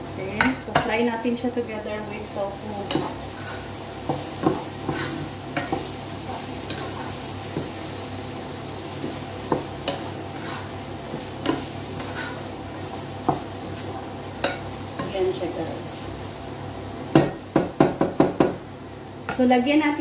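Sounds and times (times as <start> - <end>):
food sizzling in a pot: 0.0 - 20.0
wooden spatula knocking on pot: 17.2 - 18.6.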